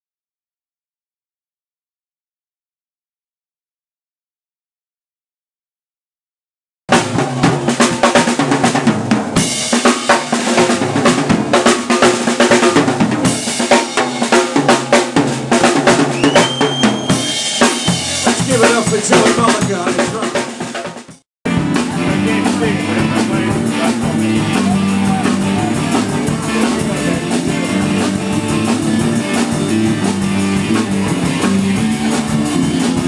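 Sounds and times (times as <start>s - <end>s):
band instruments: 6.9s - 33.0s
rock drum kit played hard: 6.9s - 33.0s.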